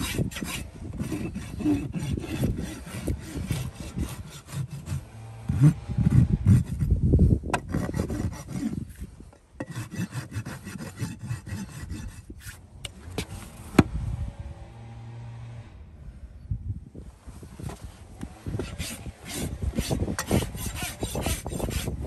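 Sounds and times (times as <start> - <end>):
knife and rasp scraping hoof: 0.0 - 13.8, 17.4 - 22.0.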